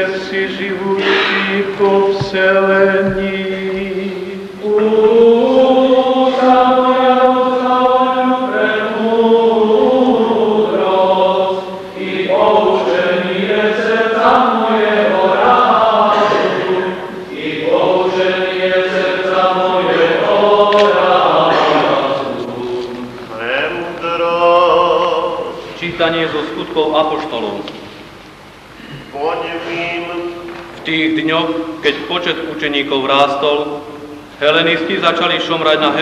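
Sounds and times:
voices singing liturgical chant: 0.0 - 27.5.

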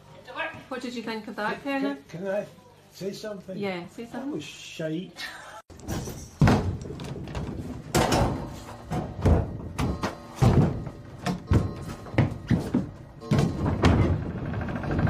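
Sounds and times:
heavy thuds of feet landing: 5.8 - 14.2.

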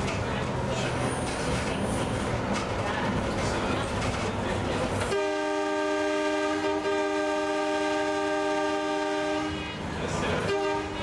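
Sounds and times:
railcar horn blasts: 5.0 - 9.8, 10.4 - 11.0.

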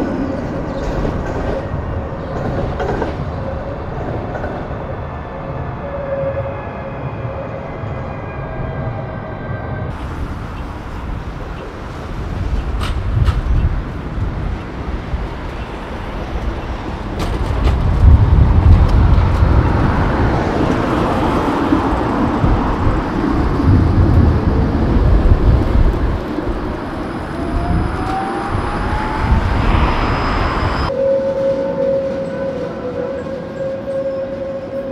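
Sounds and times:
tram wheels rumbling on rails: 0.0 - 34.9
rising whine: 27.0 - 31.3.

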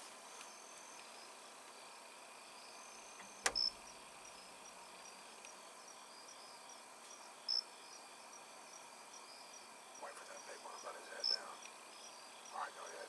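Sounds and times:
insects chirping: 0.0 - 13.0
sharp click: 3.2 - 3.7.

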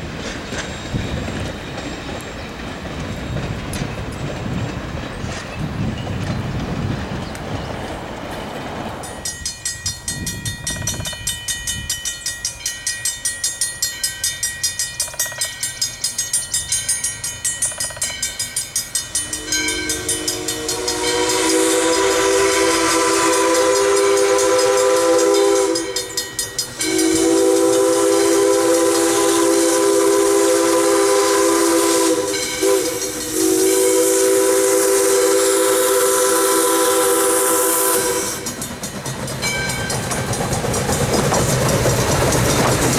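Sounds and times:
train chugging beat: 0.0 - 42.9
steam locomotive chime whistle: 9.1 - 42.9.

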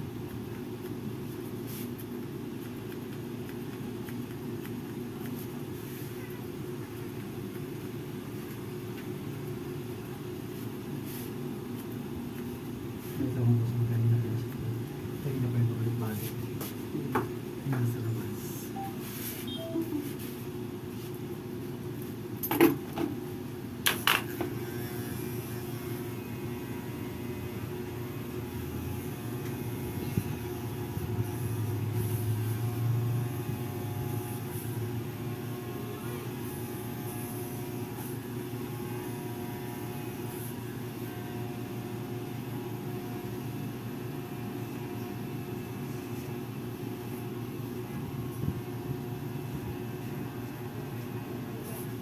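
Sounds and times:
hair clipper buzzing: 23.9 - 35.4, 36.4 - 42.2.

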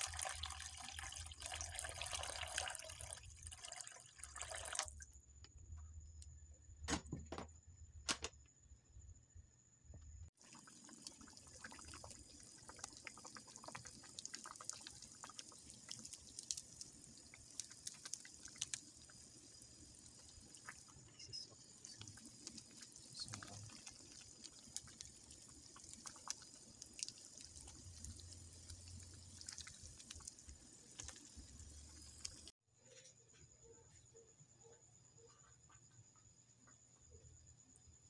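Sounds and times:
soup simmering and bubbling: 0.0 - 5.0, 10.4 - 32.6.

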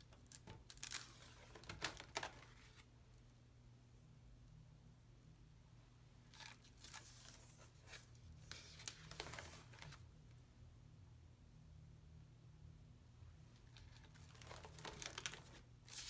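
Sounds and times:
paper rustling and crinkling: 0.2 - 2.9, 6.3 - 10.0, 13.6 - 16.0.

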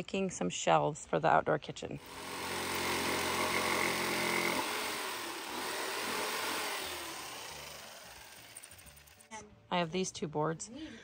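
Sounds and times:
jigsaw cutting wood: 2.0 - 9.3.

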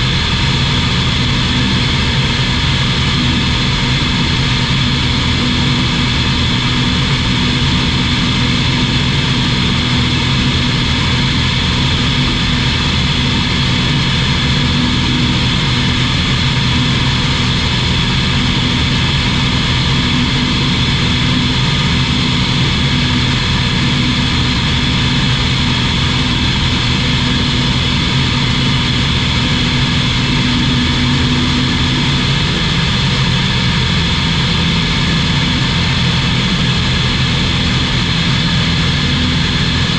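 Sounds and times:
light aircraft engine drone: 0.0 - 39.9.

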